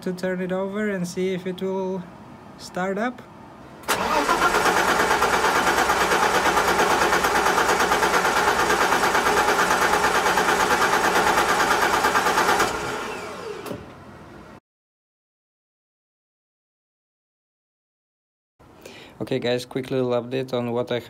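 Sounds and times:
starter motor cranking engine: 0:03.8 - 0:13.8.

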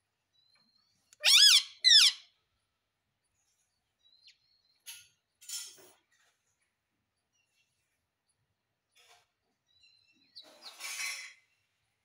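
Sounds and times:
parakeet harsh chirps: 0:01.2 - 0:02.3
parakeet shrill calls: 0:01.2 - 0:02.3.

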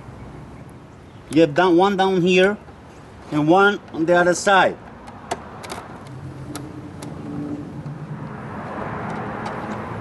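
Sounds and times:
rushing vehicle noise: 0:02.6 - 0:10.0.

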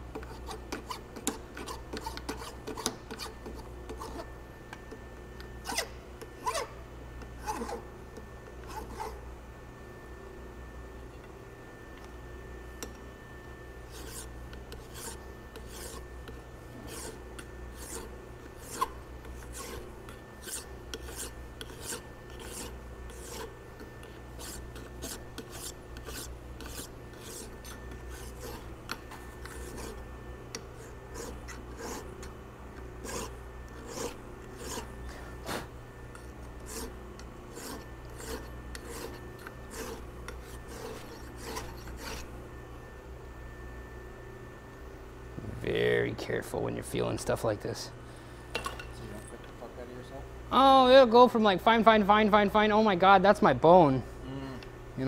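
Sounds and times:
steady low hum: 0:00.0 - 0:55.0
hand file scraping metal: 0:00.2 - 0:04.3, 0:07.4 - 0:07.8, 0:08.6 - 0:09.2, 0:13.9 - 0:30.1, 0:30.8 - 0:32.3, 0:33.0 - 0:35.7, 0:36.6 - 0:42.3.

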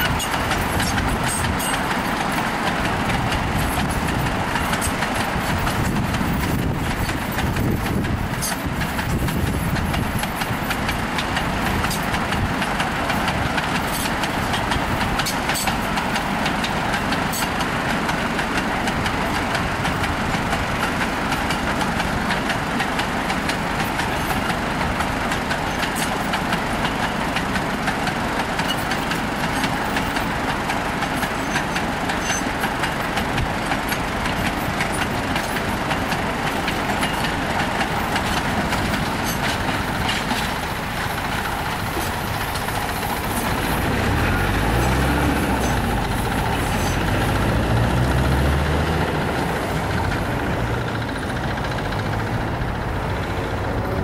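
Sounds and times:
train wheels rumbling and clicking: 0:00.0 - 0:54.0
vehicle engine running: 0:15.9 - 0:54.0.

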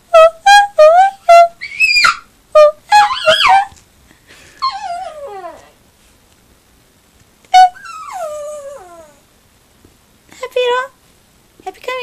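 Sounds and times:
puppy howling: 0:01.6 - 0:02.3, 0:02.9 - 0:03.7, 0:04.6 - 0:05.8, 0:07.6 - 0:09.2.

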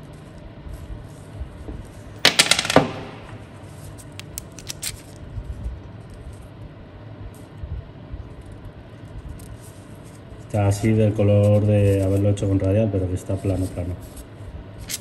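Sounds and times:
small metal parts clattering: 0:04.1 - 0:05.1.

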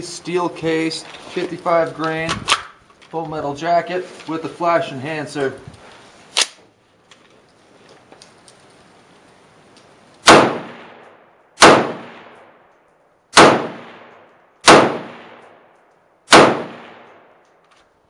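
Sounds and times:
rifle shots with reverberating tail: 0:10.2 - 0:12.7, 0:13.3 - 0:17.4.

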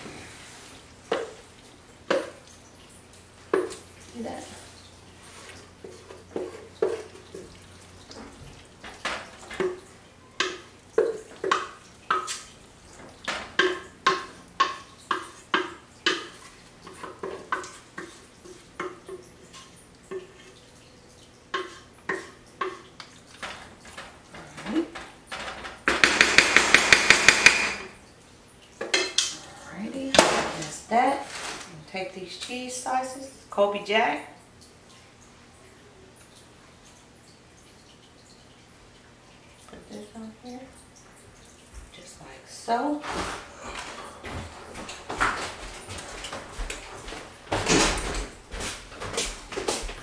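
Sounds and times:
wooden spoon knocking in metal pot: 0:10.4 - 0:12.3, 0:13.2 - 0:18.2, 0:21.5 - 0:23.5, 0:25.8 - 0:27.9.

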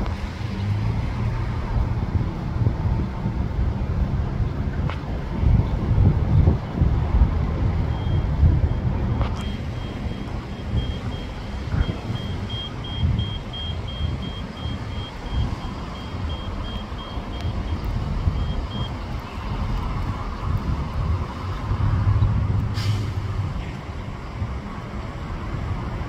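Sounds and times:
bus diesel engine running: 0:00.0 - 0:26.0
traffic: 0:00.0 - 0:26.0
high electronic beep: 0:07.9 - 0:08.8, 0:09.4 - 0:19.0
short hiss: 0:22.7 - 0:23.3.

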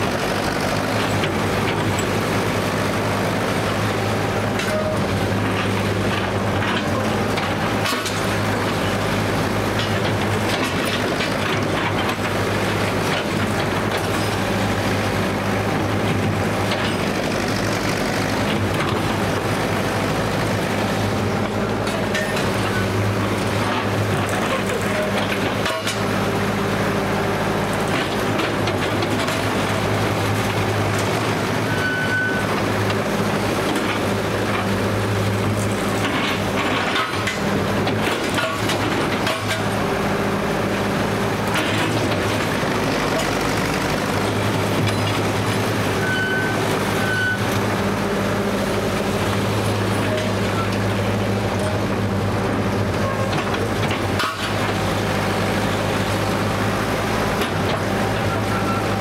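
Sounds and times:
shovel engine running: 0:00.0 - 0:59.0
machinery clanks: 0:21.0 - 0:26.4, 0:27.8 - 0:40.2, 0:48.8 - 0:59.0
short high squeaks: 0:31.6 - 0:32.5, 0:46.0 - 0:47.5.

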